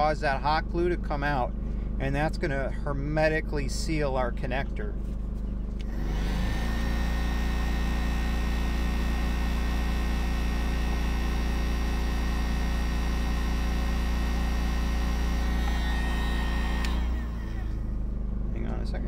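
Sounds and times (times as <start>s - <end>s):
heat gun fan blowing: 5.8s - 18.1s.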